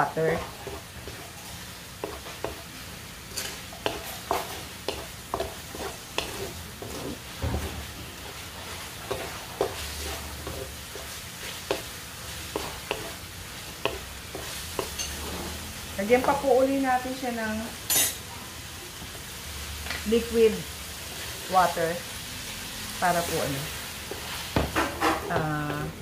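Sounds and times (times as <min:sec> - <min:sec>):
wooden spatula scraping a wok: 0:00.0 - 0:16.5, 0:23.0 - 0:26.0
low frying sizzle: 0:00.0 - 0:26.0.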